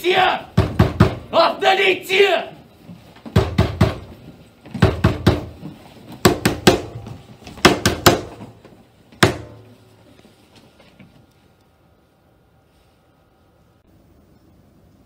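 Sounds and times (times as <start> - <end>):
heavy pounding on a door: 0.5 - 1.3, 3.3 - 8.6, 9.2 - 9.7.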